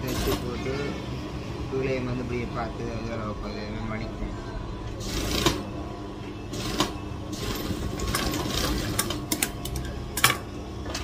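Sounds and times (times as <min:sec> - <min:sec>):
sewing machine running: 0:00.0 - 0:00.6, 0:05.0 - 0:05.7, 0:06.5 - 0:10.4.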